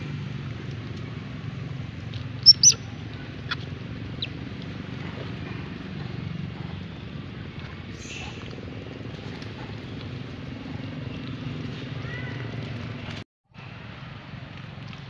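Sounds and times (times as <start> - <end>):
macaque squeaking: 2.4 - 3.6.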